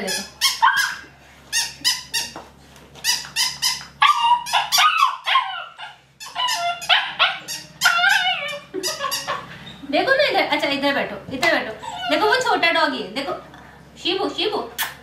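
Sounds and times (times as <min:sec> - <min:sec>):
puppy yipping and whining: 0:00.2 - 0:02.4, 0:03.1 - 0:09.8, 0:11.8 - 0:12.5
puppy howling call: 0:04.0 - 0:09.4.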